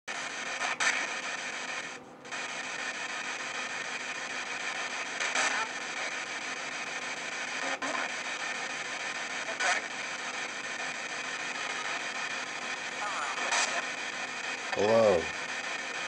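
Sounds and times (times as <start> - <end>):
radio static hiss: 0.1 - 16.0
chopped broadcast fragments: 0.2 - 16.0.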